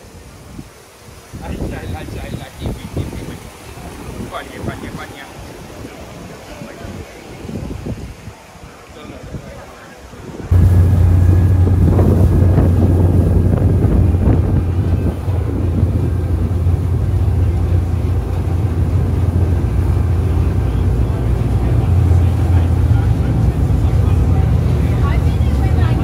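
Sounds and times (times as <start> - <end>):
wind buffeting microphone: 0.2 - 26.0
ferry engines droning: 10.5 - 26.0.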